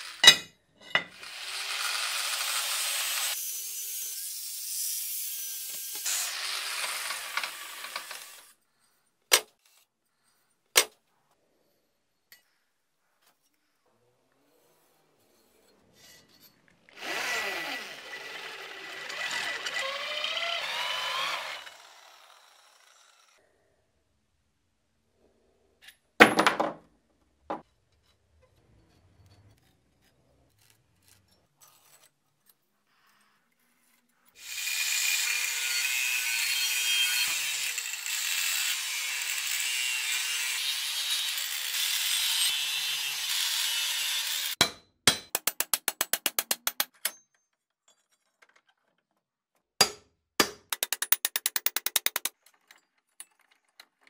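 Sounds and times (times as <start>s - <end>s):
power tool grinding metal: 1.1s - 8.5s, 17.0s - 23.4s, 34.4s - 44.6s.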